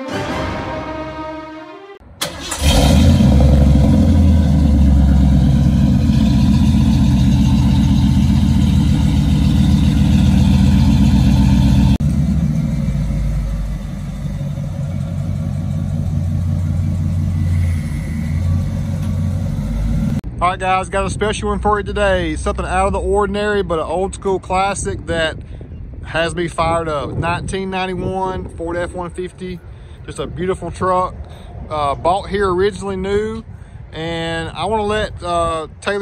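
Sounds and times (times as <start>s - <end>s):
truck engine starting and running: 0.0s - 25.8s.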